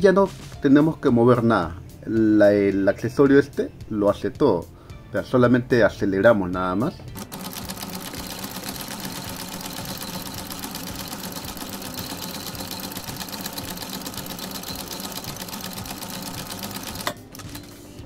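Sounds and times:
sewing machine stitching: 0:07.2 - 0:17.8.

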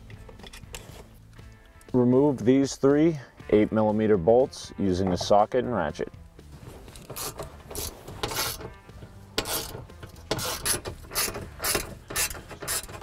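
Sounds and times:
hand ratchet clicking: 0:06.9 - 0:13.0.

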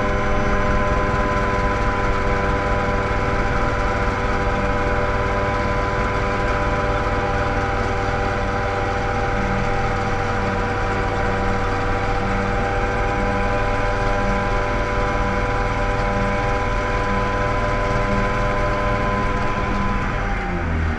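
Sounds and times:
helicopter engine and rotor running: 0:00.0 - 0:20.9.

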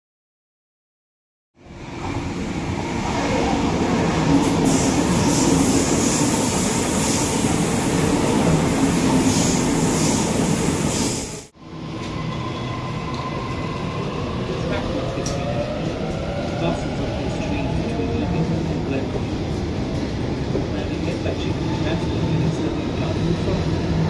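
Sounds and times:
train running past: 0:01.6 - 0:24.0.

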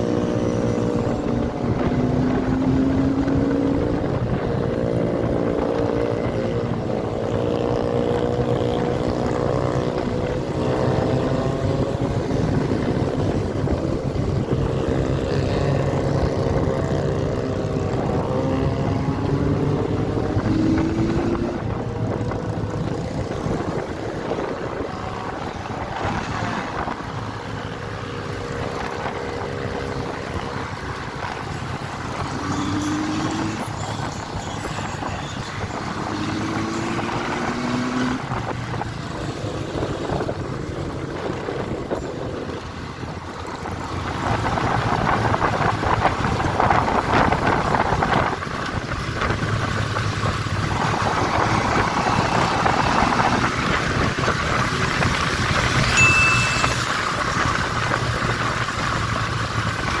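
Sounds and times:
motorcycle engine accelerating: 0:00.0 - 1:00.0
road and wind rush: 0:00.0 - 1:00.0
short high beep: 0:55.9 - 0:57.1.

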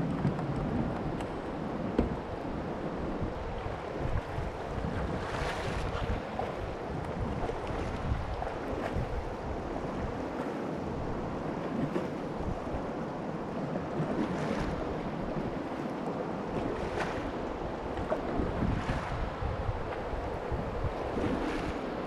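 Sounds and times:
wind buffeting microphone: 0:00.0 - 0:13.0, 0:16.4 - 0:22.0
kayak paddle dipping in water: 0:03.9 - 0:10.6, 0:13.9 - 0:21.9.

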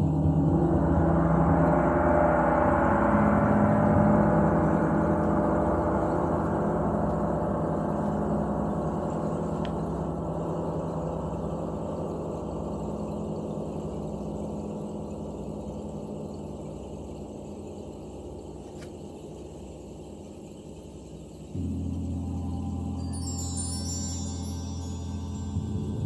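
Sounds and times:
gong ringing: 0:00.0 - 0:09.1, 0:21.6 - 0:26.0.

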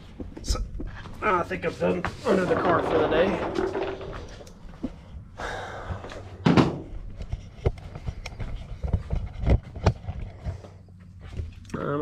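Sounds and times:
thump: 0:06.4 - 0:06.9.

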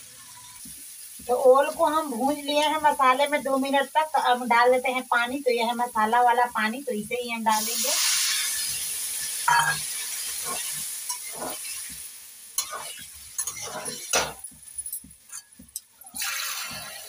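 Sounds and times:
water sizzling in hot pan: 0:00.0 - 0:17.0
spatula scraping steel pan: 0:12.6 - 0:14.4.

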